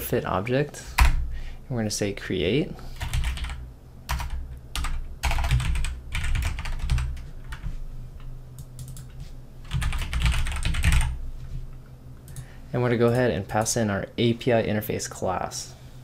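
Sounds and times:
typing on computer keyboard: 3.0s - 7.7s, 8.6s - 11.2s.

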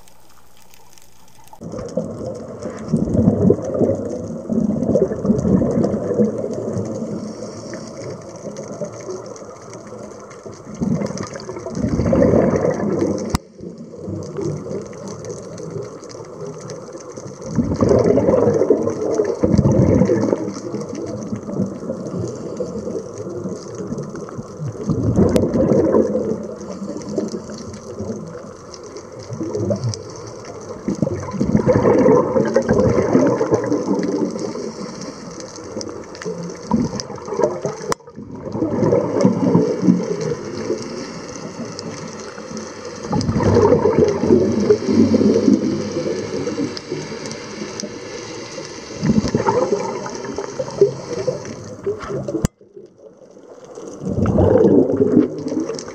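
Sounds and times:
regulator hiss: 0.0s - 1.6s, 7.0s - 8.4s, 34.3s - 36.7s, 39.7s - 43.2s, 43.9s - 52.3s
exhaled bubbles underwater: 0.0s - 55.9s.

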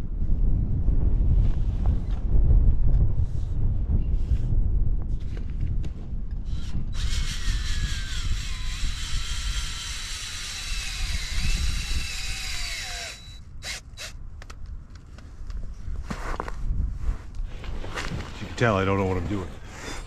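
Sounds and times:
wind rumble on microphone: 0.0s - 20.0s
power drill whining: 6.5s - 14.2s.

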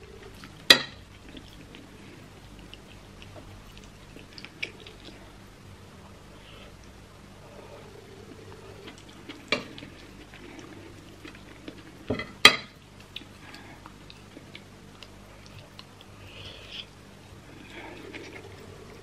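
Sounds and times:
chewing and mouth clicks: 0.1s - 5.4s, 12.9s - 19.0s.

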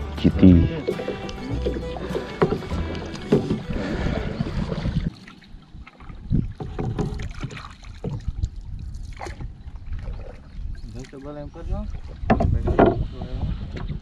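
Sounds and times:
background music: 0.0s - 4.3s
water sloshing around canoe: 0.2s - 14.0s
wind on microphone: 2.4s - 14.0s.

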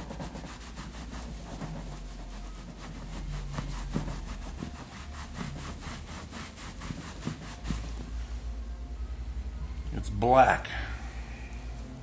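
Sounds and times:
cloth scrubbing leather: 0.0s - 8.1s.

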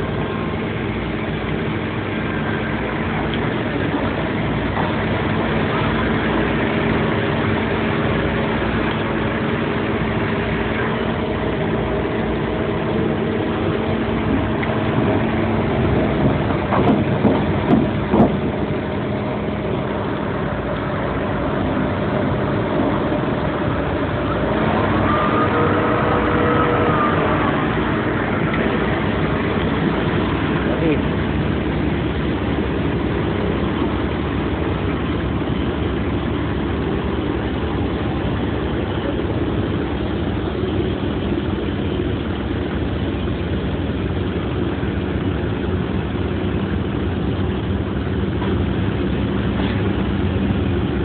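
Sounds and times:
diesel engine running: 0.0s - 51.0s
whine rising and falling: 1.2s - 39.8s
knocks: 16.7s - 18.4s.

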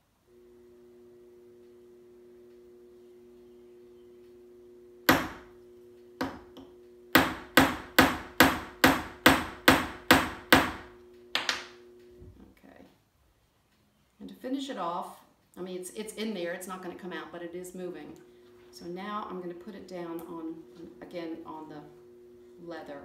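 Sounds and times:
faint steady hum: 0.0s - 23.0s
hammer striking metal punch: 5.1s - 5.5s, 7.1s - 10.8s.

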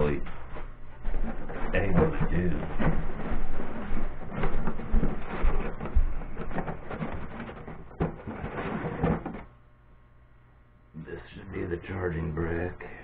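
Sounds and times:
dull bumps: 0.0s - 9.5s.

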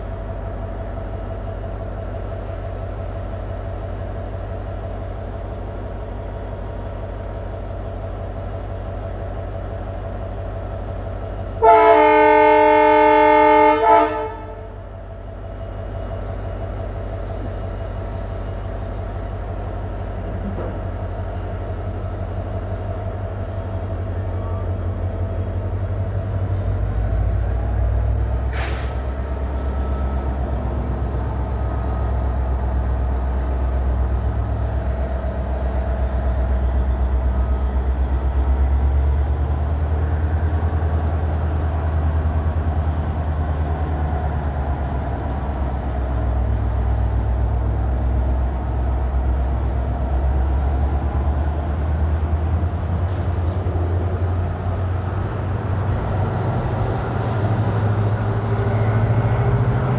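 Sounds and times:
locomotive engine drone: 0.0s - 59.9s
train horn chord: 11.6s - 14.8s.

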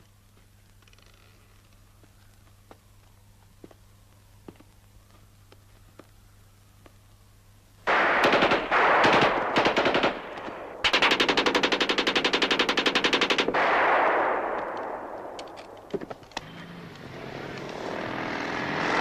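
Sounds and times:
submachine gun bursts: 7.9s - 13.8s.

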